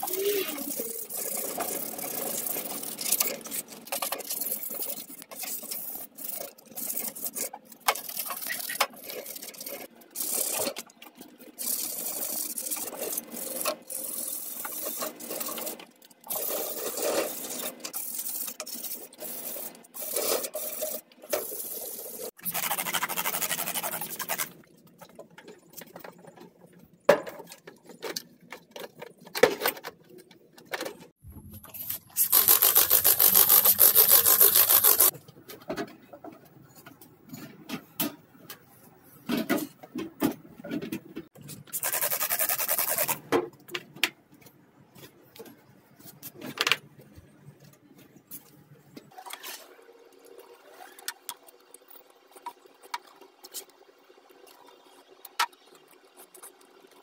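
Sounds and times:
sandpaper rubbing on metal: 0:16.3 - 0:24.6, 0:31.8 - 0:35.1, 0:41.7 - 0:43.2
spray bottle hissing: 0:31.8 - 0:35.1.

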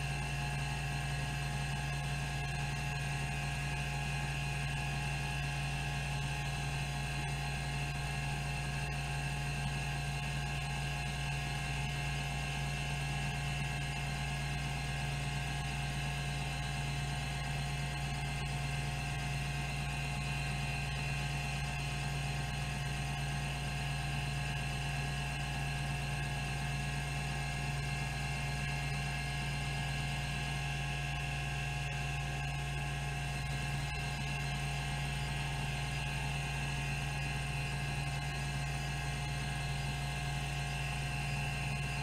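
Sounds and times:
hard disk whirring: 0:25.8 - 0:42.0.

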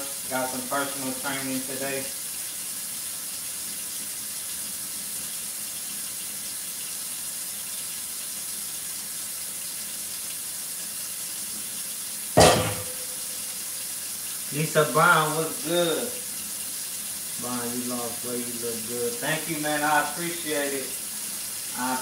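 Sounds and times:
steady hiss: 0:00.0 - 0:02.8, 0:12.4 - 0:22.0.

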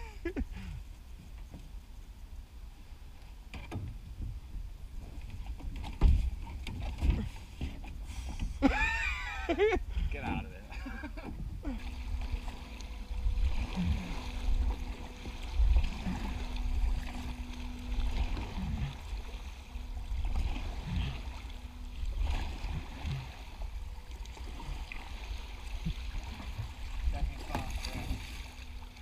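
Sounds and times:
faint hum: 0:00.0 - 0:29.0
low rumble: 0:00.0 - 0:29.0
water sloshing around canoe: 0:03.3 - 0:29.0.

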